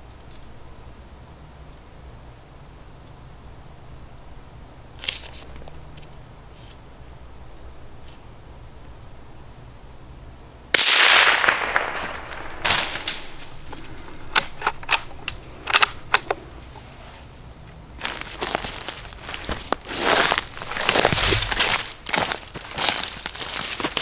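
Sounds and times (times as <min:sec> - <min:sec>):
sharp snaps and crackles: 0:05.0 - 0:07.0, 0:10.8 - 0:16.8, 0:17.6 - 0:24.0
suppressed rifle shot: 0:10.7 - 0:16.2.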